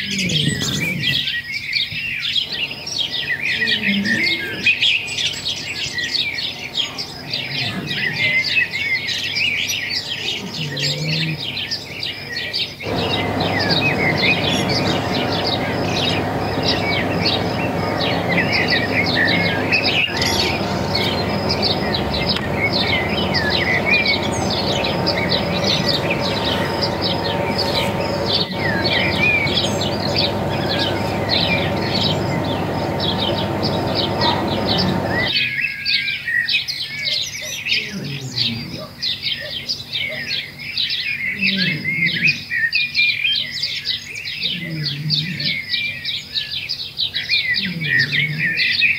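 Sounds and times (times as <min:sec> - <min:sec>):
small birds chirping and twittering: 0:00.0 - 0:48.9
steady low noise: 0:12.8 - 0:35.3.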